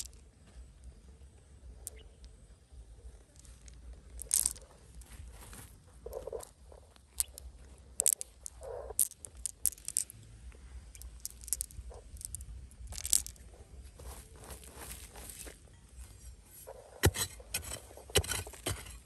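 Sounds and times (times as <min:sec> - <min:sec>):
low steady rumble: 0:00.0 - 0:19.0
crunching scrapes: 0:03.3 - 0:10.1, 0:10.9 - 0:19.0.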